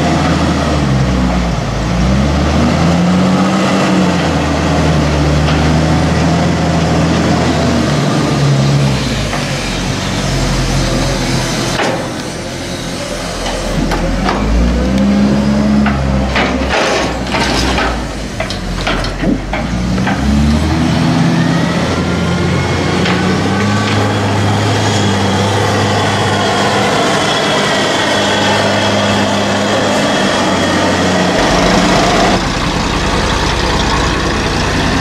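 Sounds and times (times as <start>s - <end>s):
tractor engine: 0.0s - 35.0s
wheel loader diesel engine: 0.0s - 35.0s
hydraulic whine: 8.3s - 35.0s.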